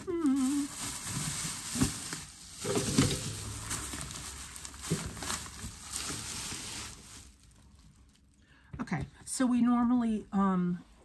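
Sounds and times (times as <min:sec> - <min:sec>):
plastic bag rustling: 0:00.0 - 0:08.4.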